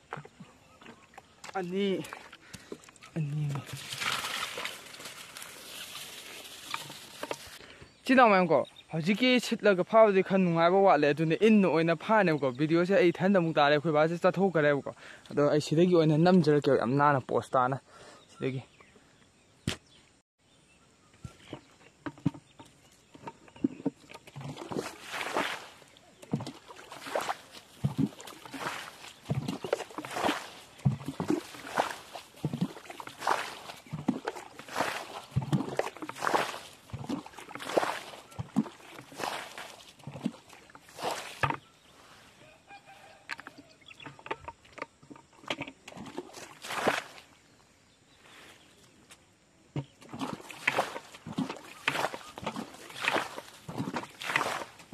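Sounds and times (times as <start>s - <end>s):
small splashes and knocks: 0.0s - 8.4s, 21.2s - 42.2s, 42.9s - 47.6s, 49.0s - 54.9s
water pouring from bucket: 1.1s - 7.6s, 22.1s - 41.7s, 43.0s - 47.4s, 50.0s - 54.9s
bucket knocks: 21.2s - 25.6s, 26.3s - 41.7s.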